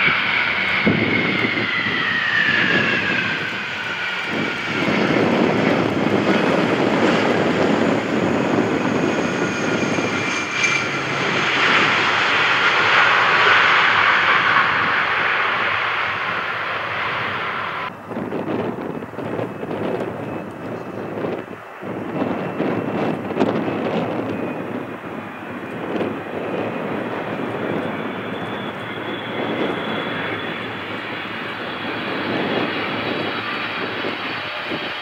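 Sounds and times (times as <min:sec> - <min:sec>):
reverse thrust roar: 0:00.0 - 0:20.2
jet engines rushing and whining: 0:00.0 - 0:35.0.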